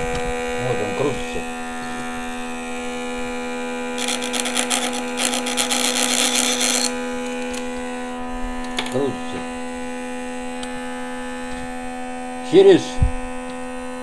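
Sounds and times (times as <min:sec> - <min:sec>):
electric motor humming: 0:00.0 - 0:12.1.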